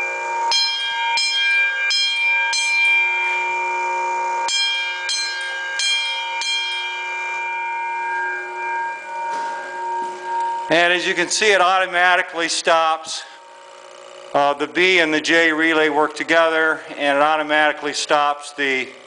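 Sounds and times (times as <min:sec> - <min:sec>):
fire alarm bells striking: 0:00.0 - 0:19.0.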